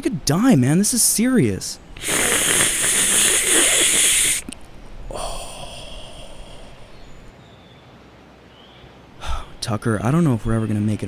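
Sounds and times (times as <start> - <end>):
hissing draw on vape pen: 2.0 - 4.6
breathy exhale: 2.0 - 7.3.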